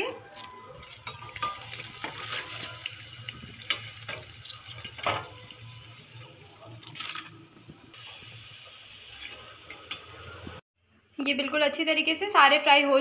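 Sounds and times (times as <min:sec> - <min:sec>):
food sizzling in hot oil: 0:00.5 - 0:11.0
metal spoon scraping a pan: 0:00.8 - 0:05.7.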